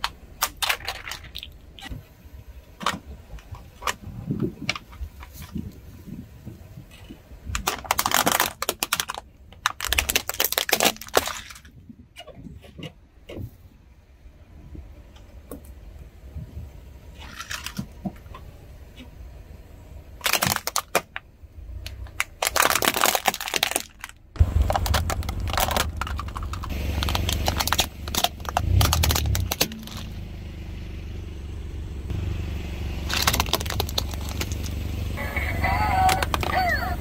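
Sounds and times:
plastic toys crunching under tyre: 0.0s - 2.0s, 2.6s - 12.8s, 17.1s - 18.4s, 20.1s - 30.2s, 33.0s - 37.0s
low rumble: 21.3s - 37.0s.

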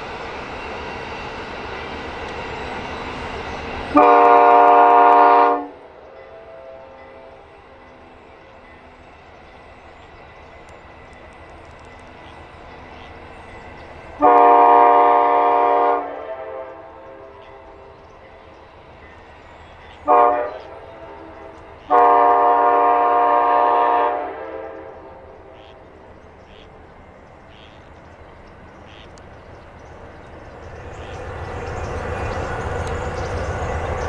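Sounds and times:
train rolling past: 0.0s - 34.0s
train horn blasts: 3.9s - 7.5s, 14.2s - 17.9s, 20.0s - 25.8s.

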